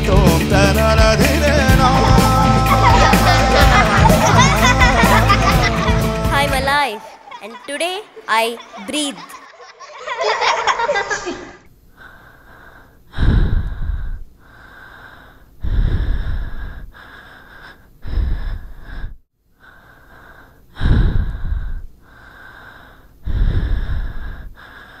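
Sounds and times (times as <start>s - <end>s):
heavy breathing: 11.9s - 25.0s.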